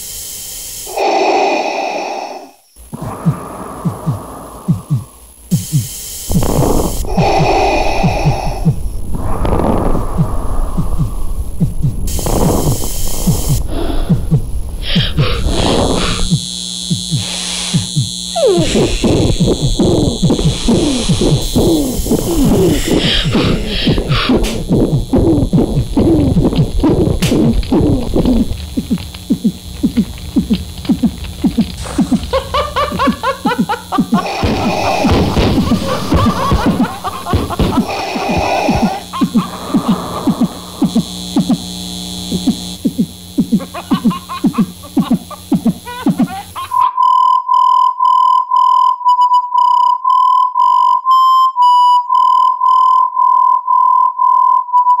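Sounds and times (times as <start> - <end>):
hissing buzzing electronic tones: 0.0 - 46.8
high repeating electronic chirps: 11.0 - 13.6, 16.2 - 41.6, 42.8 - 54.7
pulsing electronic beep: 46.8 - 55.0.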